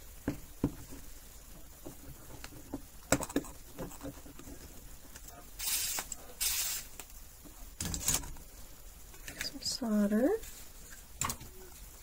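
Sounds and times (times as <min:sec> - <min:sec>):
short hissing bursts: 0:05.6 - 0:07.0.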